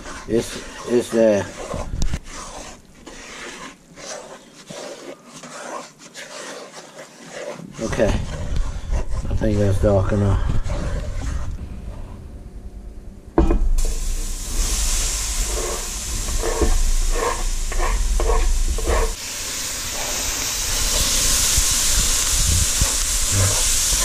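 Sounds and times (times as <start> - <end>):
wooden spoon scraping a pot: 0.0 - 12.2, 14.6 - 19.2, 19.8 - 24.0
thump in a pot: 13.4 - 13.9
vegetables sizzling in a pot: 13.8 - 24.0.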